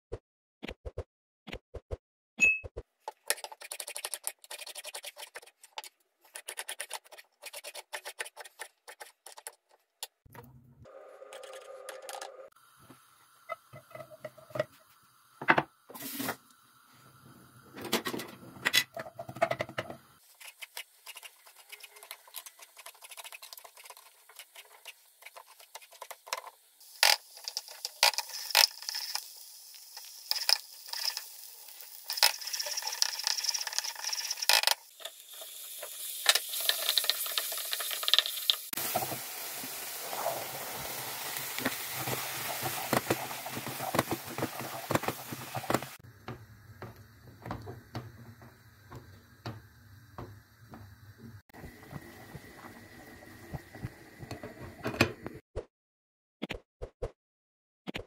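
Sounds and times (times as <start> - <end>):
food sizzling in a pan: 12.5 - 17.8, 20.2 - 54.8
utensils clicking and knocking: 32.0 - 34.9.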